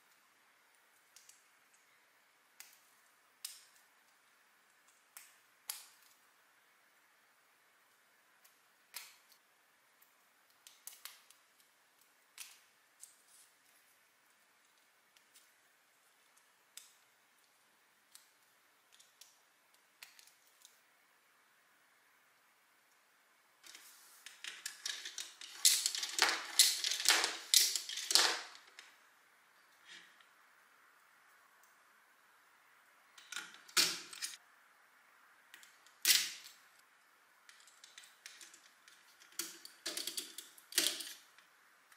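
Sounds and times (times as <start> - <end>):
plastic parts clicking together: 23.6 - 28.9, 37.5 - 41.4.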